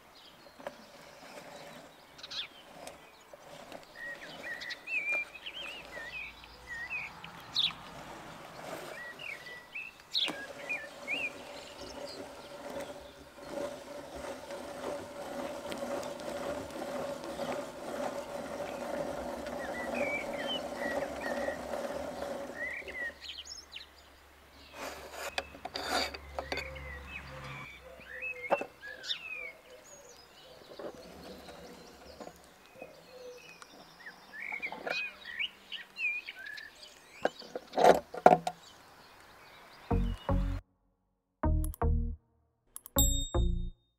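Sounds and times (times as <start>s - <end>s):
birds chirping: 0.0s - 14.8s, 15.5s - 40.6s
hand-cranked grinder grinding: 0.4s - 23.8s, 24.6s - 29.4s, 30.6s - 35.4s.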